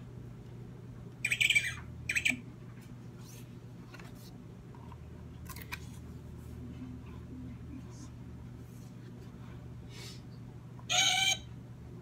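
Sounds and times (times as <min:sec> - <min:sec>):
recorded penguin squawks from small speaker: 0:10.9 - 0:11.5.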